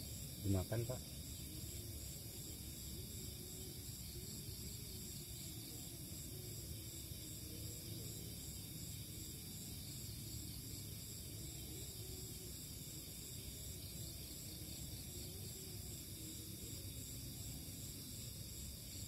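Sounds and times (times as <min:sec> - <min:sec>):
night insects chirring: 0:00.0 - 0:19.0.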